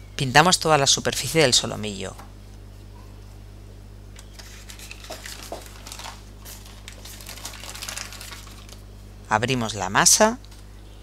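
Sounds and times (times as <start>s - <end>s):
low electrical hum: 0.0s - 11.0s
baking paper rustling: 4.2s - 8.9s.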